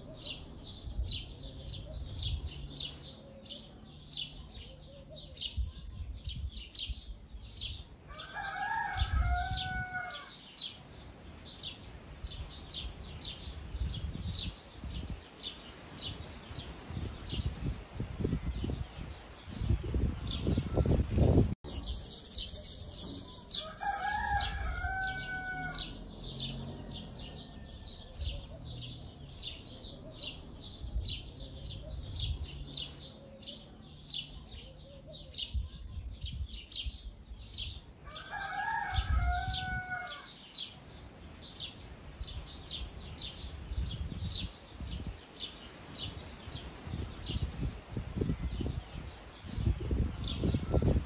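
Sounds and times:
rooster crowing: 8.1 - 10.4, 23.5 - 28.4, 38.0 - 40.3.

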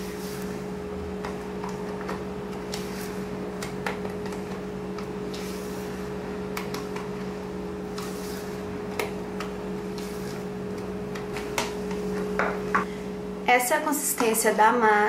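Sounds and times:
steady low hum: 0.0 - 15.0
spatula scraping bowl: 7.9 - 8.8.

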